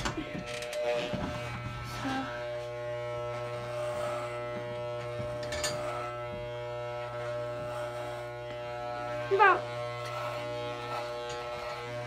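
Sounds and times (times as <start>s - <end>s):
electric clippers running: 0.0s - 12.0s.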